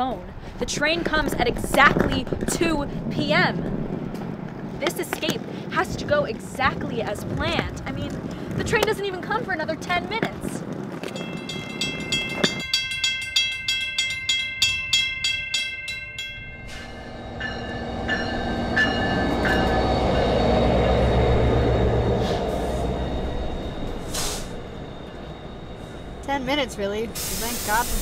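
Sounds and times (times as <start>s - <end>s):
train passing with rumble: 0.0s - 28.0s
rhythmic bell ringing: 11.0s - 28.0s
faint high squeals: 16.6s - 27.2s.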